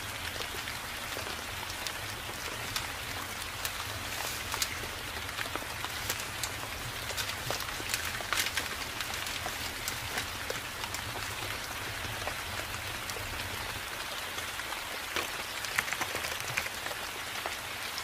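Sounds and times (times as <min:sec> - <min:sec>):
rain falling: 0:00.0 - 0:18.0
sharp raindrops: 0:00.0 - 0:18.0.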